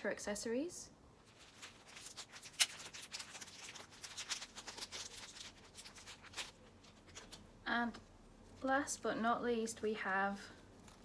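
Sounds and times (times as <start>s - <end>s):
packaging rustling: 1.2s - 7.5s.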